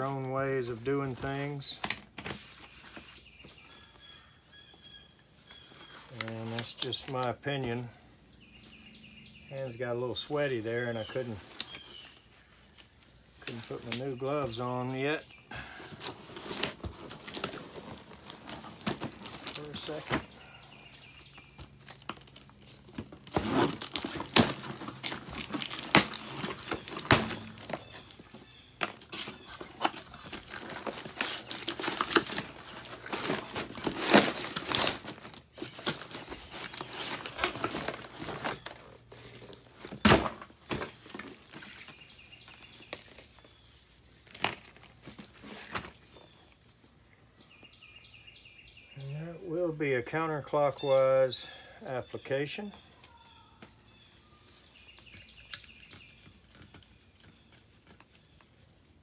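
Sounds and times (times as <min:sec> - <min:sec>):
cardboard rustling and crinkling: 0:15.7 - 0:46.9.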